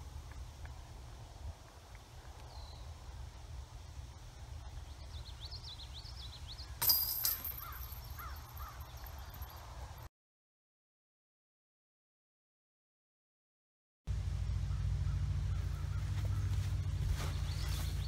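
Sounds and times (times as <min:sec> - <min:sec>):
birds chirping: 0:01.9 - 0:10.1, 0:14.5 - 0:18.0
disc striking metal chains: 0:06.8 - 0:09.6.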